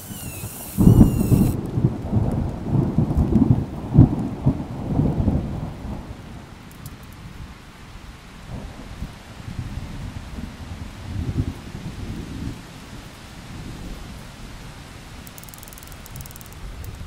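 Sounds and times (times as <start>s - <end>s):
steady rain: 0.0s - 17.0s
thunder clap rolling: 0.7s - 6.4s.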